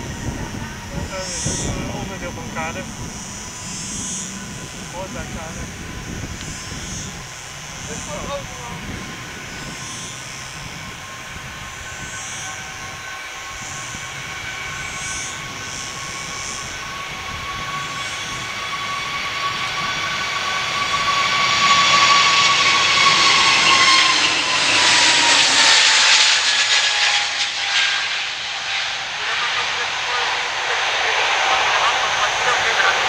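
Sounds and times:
jet engines roaring at take-off: 0.0s - 33.0s.

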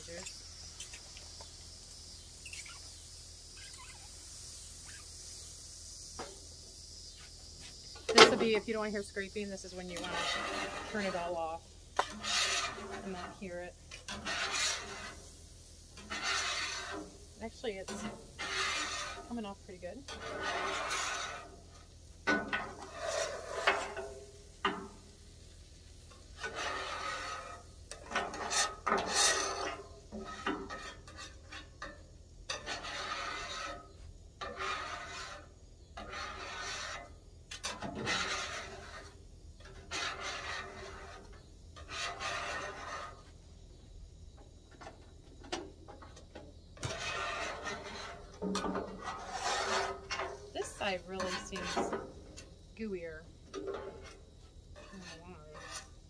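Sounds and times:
metal scraper scraping steel griddle: 8.1s - 25.3s, 26.0s - 43.4s, 46.8s - 52.4s, 53.5s - 54.2s, 54.8s - 56.0s.

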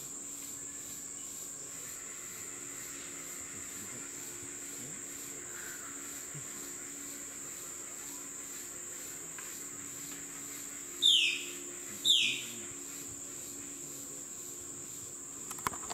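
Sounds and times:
insects droning: 0.0s - 15.9s
bird downward-sliding calls: 11.0s - 12.5s.

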